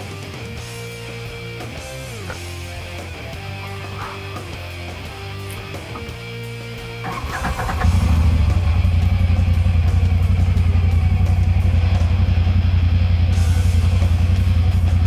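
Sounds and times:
engine idling: 0.0 - 15.0
engine starter cranking: 7.0 - 8.9.

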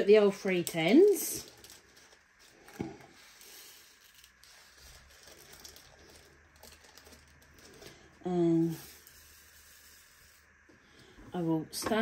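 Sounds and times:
plastic bag handling: 0.3 - 8.2.

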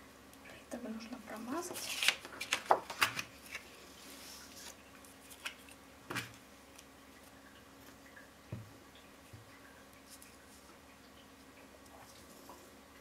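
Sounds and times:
paper rustling: 1.6 - 5.8.

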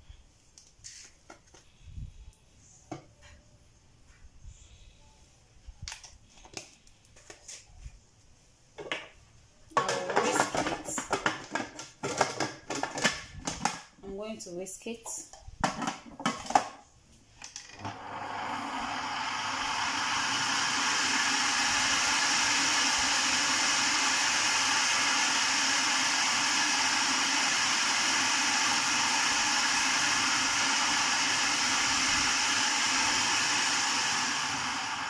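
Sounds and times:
food processor motor running: 17.8 - 35.0.

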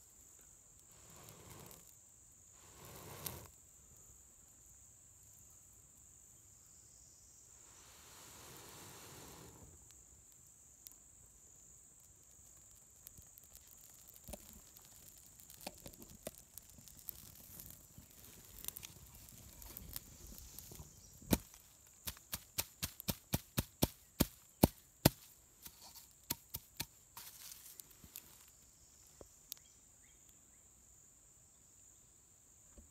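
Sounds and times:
crickets trilling: 0.0 - 32.8
fire crackling and popping: 0.7 - 2.0, 2.6 - 3.6, 8.2 - 28.6.

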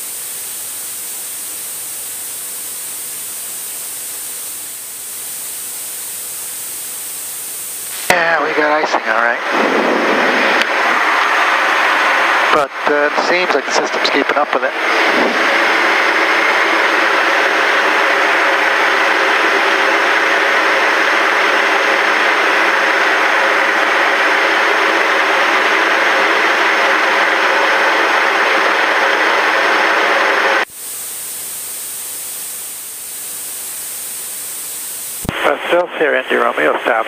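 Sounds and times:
aircraft engines droning: 7.9 - 30.7.

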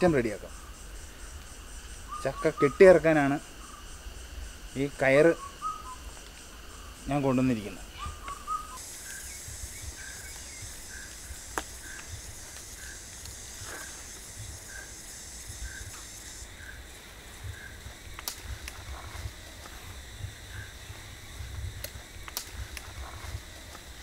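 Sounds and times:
cicadas buzzing: 0.0 - 24.0
wind rumbling on microphone: 7.9 - 24.0
sharp clicks: 18.1 - 19.1, 21.8 - 23.0.

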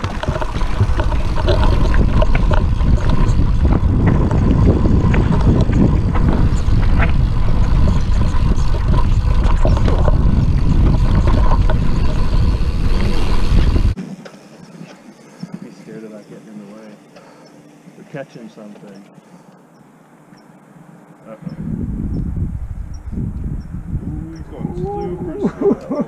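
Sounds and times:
wind buffeting microphone: 0.0 - 14.0, 21.4 - 26.0
bike clicks and rattles: 0.0 - 15.1
bike tyre noise: 0.0 - 18.2.

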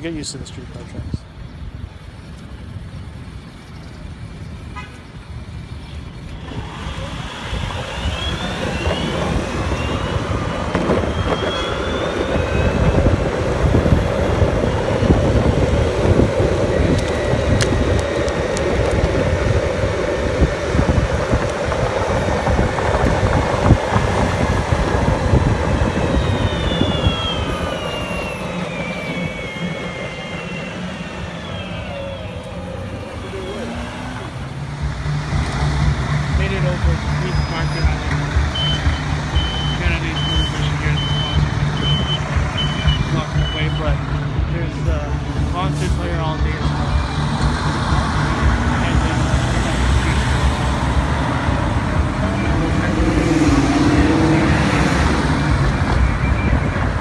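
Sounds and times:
wind rushing over microphone: 5.9 - 34.5
rising whine: 6.2 - 57.0.

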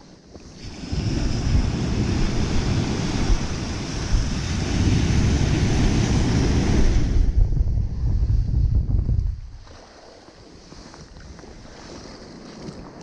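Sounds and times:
wind buffeting microphone: 0.3 - 13.0
ocean surf breaking: 0.4 - 7.5.

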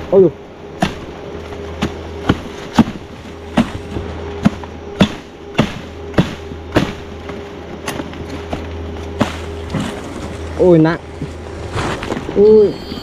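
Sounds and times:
low hum: 0.0 - 13.0
sharp chopping knocks: 0.8 - 1.1, 1.8 - 8.6, 9.2 - 9.9.

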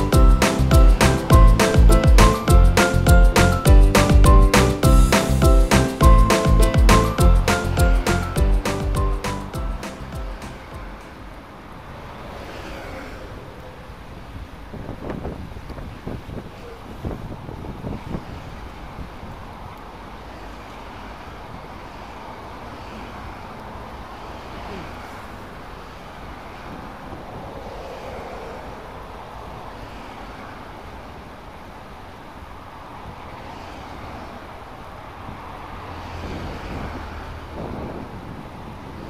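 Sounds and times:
distant traffic rumble: 0.0 - 39.0
wind on microphone: 13.2 - 19.8, 35.2 - 39.0.

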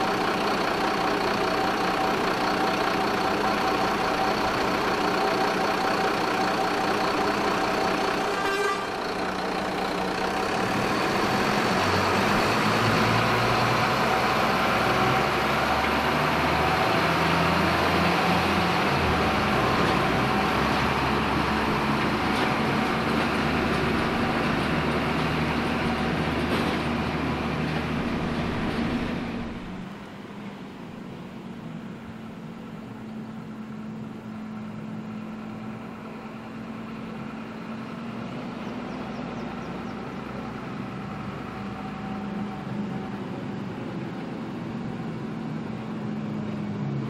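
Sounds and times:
diesel locomotive engines under load: 0.0 - 47.0
locomotive horn chord: 7.8 - 9.5.

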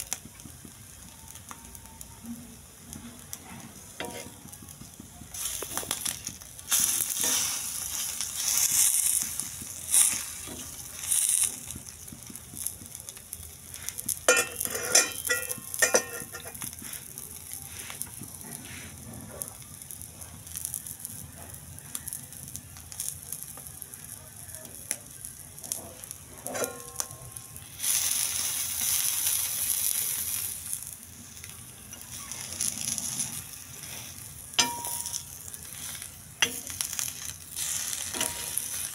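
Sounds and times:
egg sizzling on a griddle: 0.0 - 38.9
steel spoon scraping griddle: 2.9 - 4.6, 5.2 - 12.8, 13.5 - 19.6, 25.6 - 38.9.

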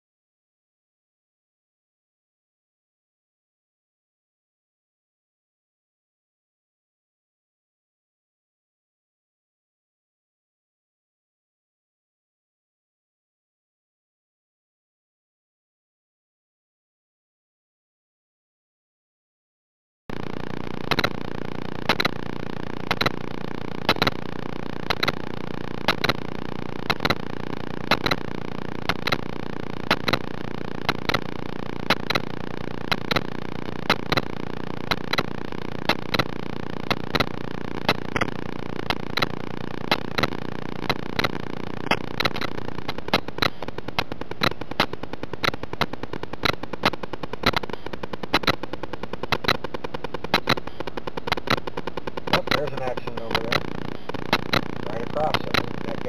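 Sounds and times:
sharp electrical clicks: 20.1 - 56.0.

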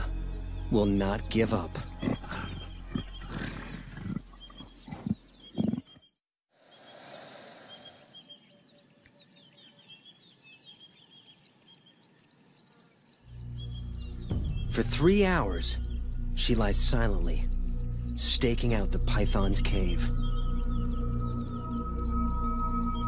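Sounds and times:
leopard snarling and growling: 1.8 - 5.9.

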